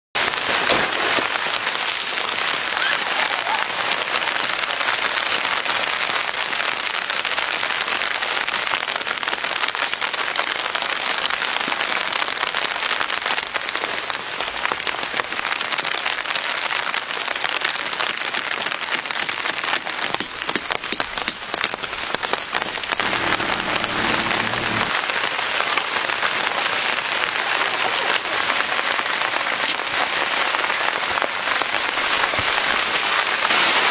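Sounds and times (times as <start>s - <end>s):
rain pattering on a tent: 0.2s - 33.9s
low hum: 22.7s - 25.0s.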